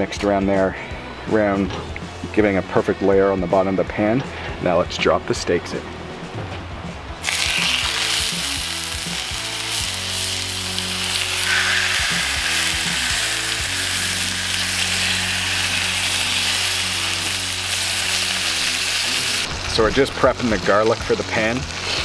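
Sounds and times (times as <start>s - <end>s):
steak sizzling in a skillet: 7.2s - 22.0s.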